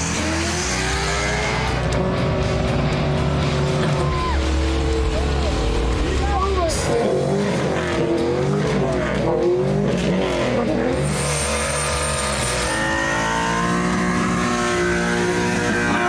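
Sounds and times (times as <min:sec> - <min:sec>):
car engine revving: 0:00.0 - 0:16.0.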